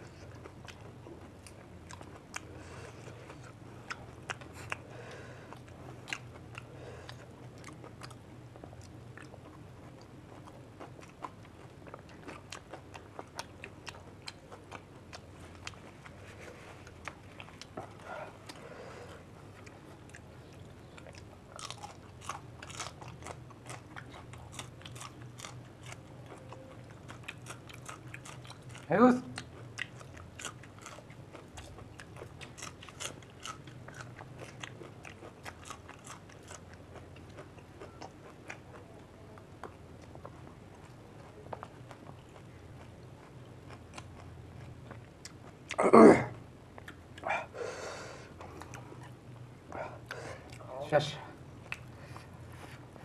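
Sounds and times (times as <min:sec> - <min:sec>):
people crunching crisp shells: 0:19.6 - 0:45.9.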